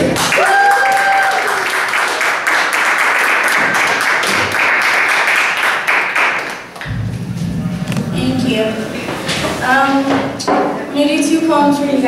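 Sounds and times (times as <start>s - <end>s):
audience applauding: 0.2s - 6.9s.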